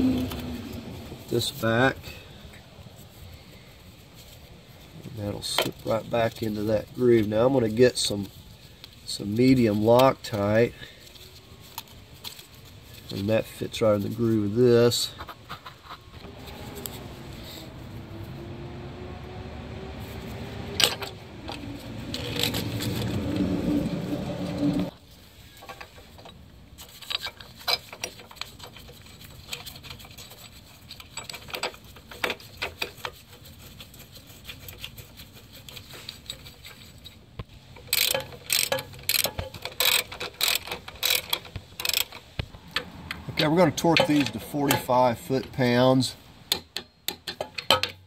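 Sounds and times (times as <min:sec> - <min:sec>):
hand ratchet clicking: 0:37.8 - 0:42.9.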